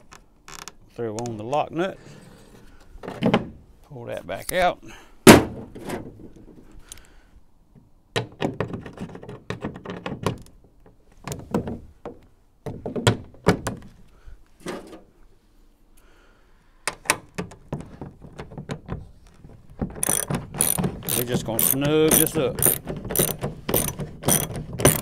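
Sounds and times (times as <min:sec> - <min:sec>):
knocks and clunks of tools: 0:07.8 - 0:13.9, 0:16.8 - 0:25.0.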